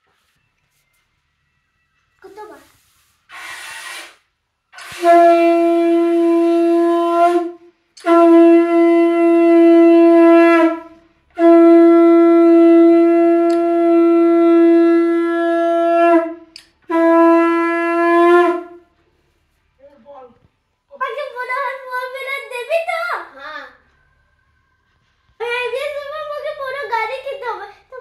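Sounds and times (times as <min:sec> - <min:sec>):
conch shell blasts: 0:03.6 - 0:19.0.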